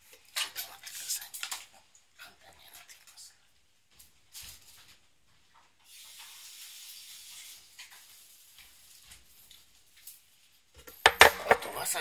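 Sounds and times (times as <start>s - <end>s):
faint tap water running: 5.5s - 9.7s.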